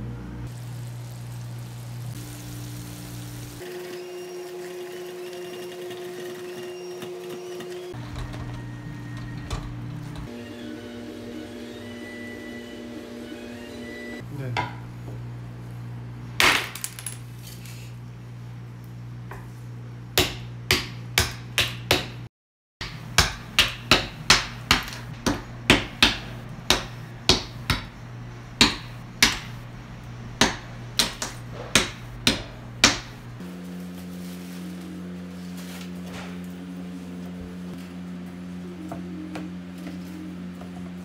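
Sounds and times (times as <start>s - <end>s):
steady low hum: 22.8s - 41.0s.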